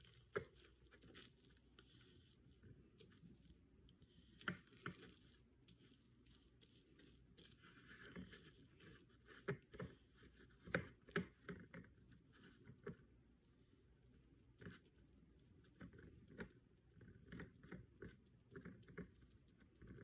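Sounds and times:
paper rustling: 0:00.0 - 0:11.6.

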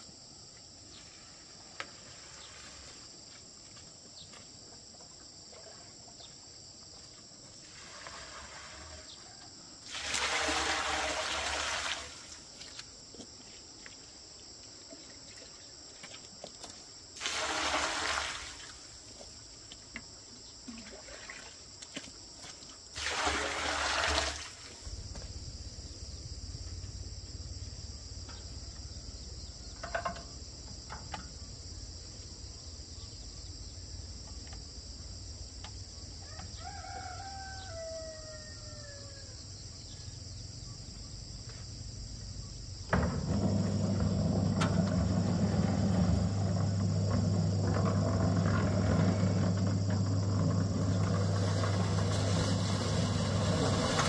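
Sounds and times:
insects droning: 0:00.0 - 0:54.0
rooster crowing: 0:36.2 - 0:39.4.

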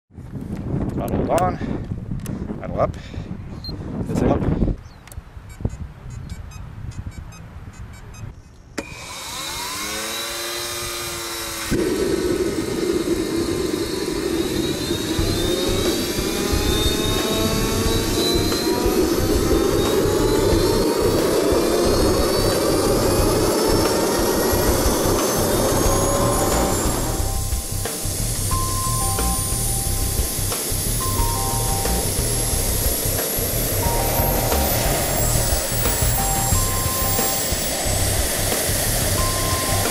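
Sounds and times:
faint beeps: 0:05.5 - 0:08.5, 0:39.2 - 0:39.9
turbine whine and jet rush: 0:08.8 - 0:39.9
music with bass beat: 0:15.2 - 0:39.9.

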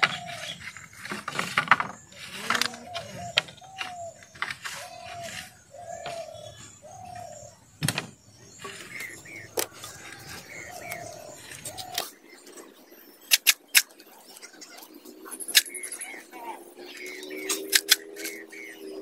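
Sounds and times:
birds calling: 0:00.0 - 0:19.0
bamboo poles knocking: 0:01.0 - 0:04.8.

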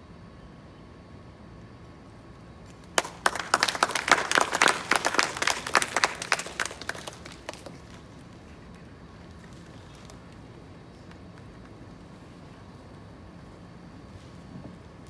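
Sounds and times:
audience applauding: 0:02.9 - 0:08.2.

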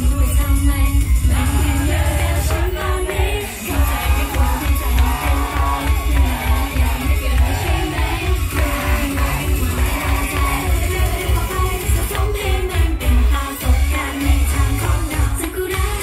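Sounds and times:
women singing into microphones: 0:00.0 - 0:16.0
heavy bass beat: 0:01.1 - 0:16.0.

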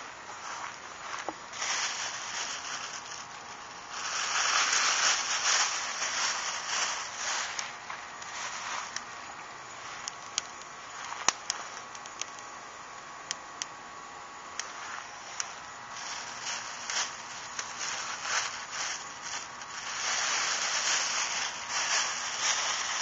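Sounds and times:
plastic bag rustling: 0:00.0 - 0:09.0, 0:14.8 - 0:23.0
charcoal grill crackling: 0:00.0 - 0:23.0.

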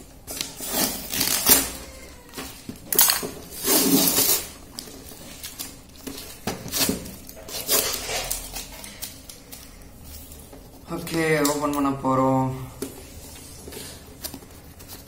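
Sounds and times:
cardboard rustling: 0:00.0 - 0:15.0
packing tape ripping: 0:00.2 - 0:02.7, 0:03.5 - 0:09.8.

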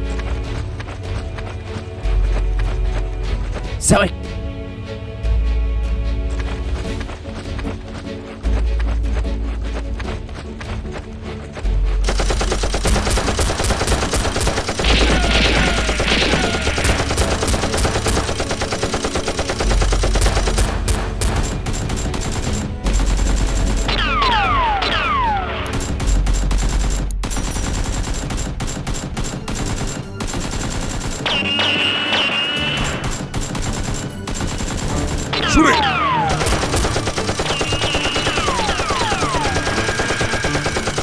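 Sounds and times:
rapid automatic gunfire effects: 0:12.0 - 0:41.0
falling whistles: 0:37.5 - 0:40.6.

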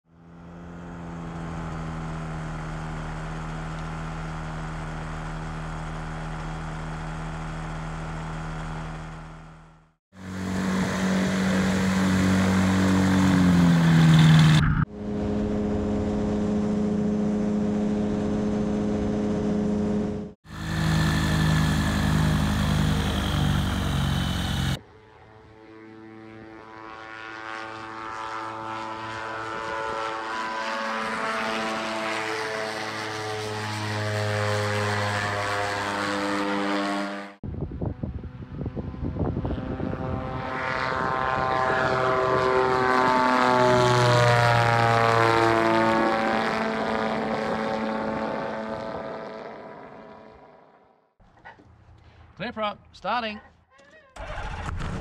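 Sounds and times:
ultralight aircraft engine: 0:00.1 - 0:51.6, 0:54.2 - 0:55.0.

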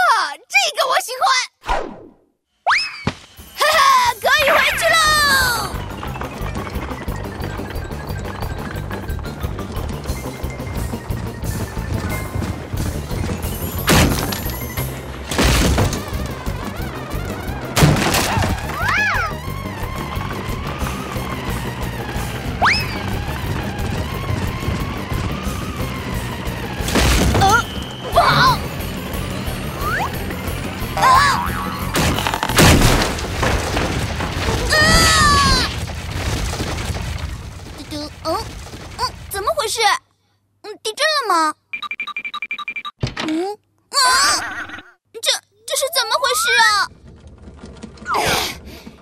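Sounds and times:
wooden cart rattling: 0:03.3 - 0:39.8, 0:45.8 - 0:49.0
heavy crashing thuds: 0:04.3 - 0:31.0, 0:31.7 - 0:39.6
cartoon music with bass line: 0:04.5 - 0:15.3, 0:27.3 - 0:32.3.

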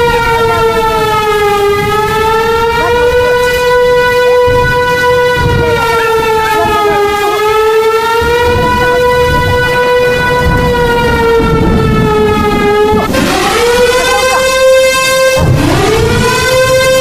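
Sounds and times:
warning siren wailing: 0:00.0 - 0:17.0
low rumble: 0:08.2 - 0:17.0.

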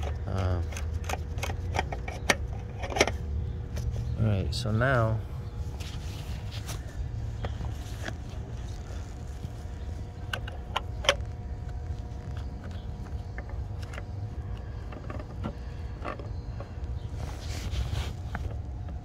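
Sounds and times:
cap clicks and creaks: 0:00.0 - 0:03.9, 0:10.2 - 0:17.0
faint steady hum: 0:00.0 - 0:19.0
steady low rumble: 0:00.0 - 0:19.0.

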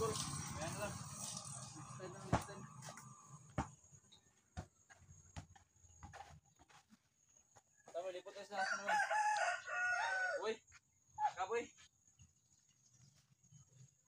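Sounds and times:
rooster crowing: 0:08.5 - 0:10.6.

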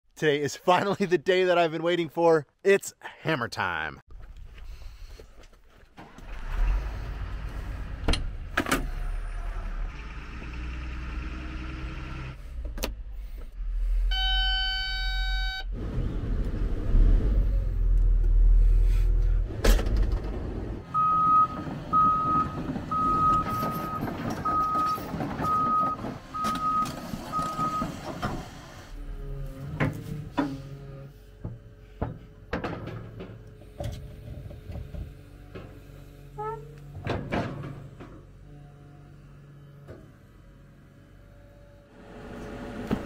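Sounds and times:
excavator diesel engine running: 0:13.2 - 0:32.6, 0:37.4 - 0:43.0
travel alarm beeping: 0:14.1 - 0:15.7, 0:20.9 - 0:27.9
warning buzzer: 0:14.1 - 0:15.7.

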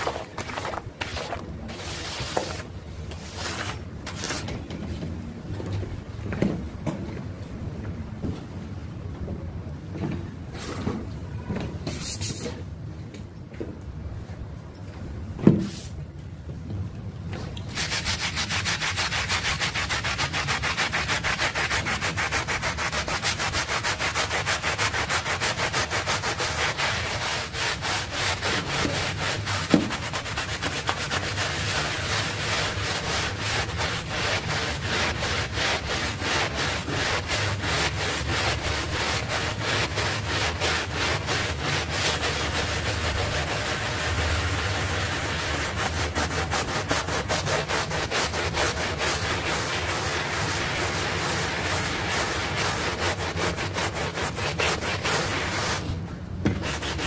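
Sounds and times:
scrub brush scrubbing wet rug: 0:00.0 - 0:04.5, 0:17.7 - 0:55.9, 0:56.5 - 0:57.0.

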